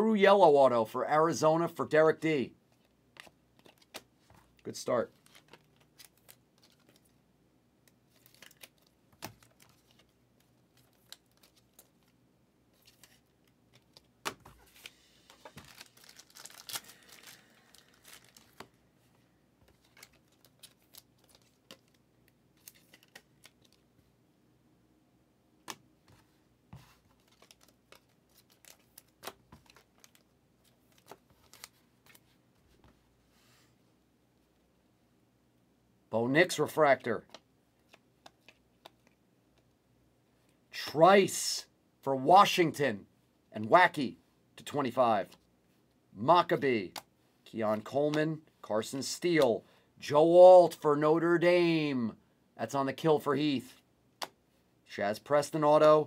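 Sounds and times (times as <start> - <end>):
wrapper tearing and crinkling: 14.7 - 18.7
light clicks and taps of cards: 37.3 - 39.7.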